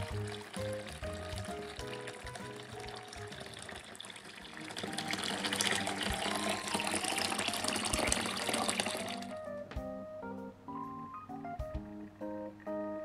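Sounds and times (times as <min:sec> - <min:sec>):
water pouring into plastic basin: 0:00.0 - 0:09.4
light background music: 0:00.0 - 0:13.0.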